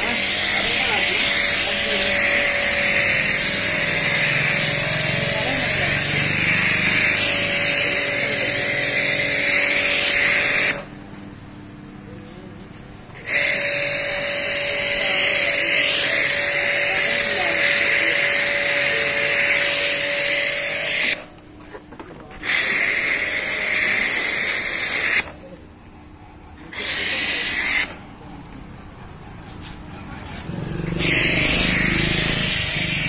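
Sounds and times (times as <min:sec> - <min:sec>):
pressure washer spraying water: 0:00.0 - 0:10.9, 0:13.2 - 0:21.4, 0:22.4 - 0:25.4, 0:26.7 - 0:28.0, 0:30.4 - 0:33.0
steady whine: 0:00.0 - 0:25.6.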